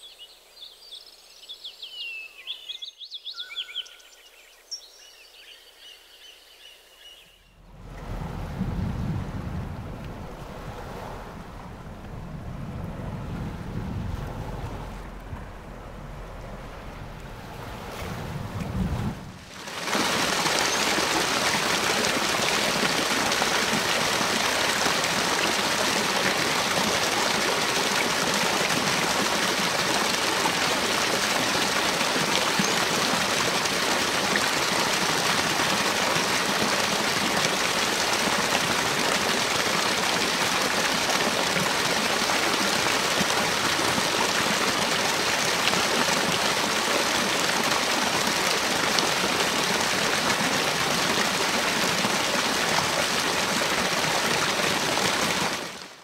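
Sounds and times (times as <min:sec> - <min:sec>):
waterfall pouring onto rocks: 0:19.4 - 0:55.9.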